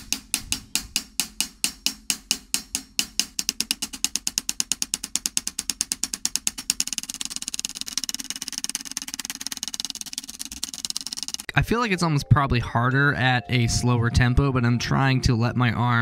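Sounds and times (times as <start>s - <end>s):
hi-hat strokes: 0.0s - 11.5s.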